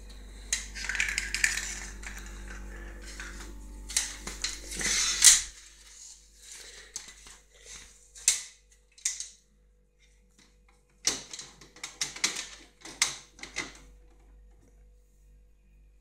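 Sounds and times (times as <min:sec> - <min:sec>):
walnut clacking on tile floor: 0:00.5 - 0:05.6, 0:06.5 - 0:09.4, 0:10.1 - 0:14.3.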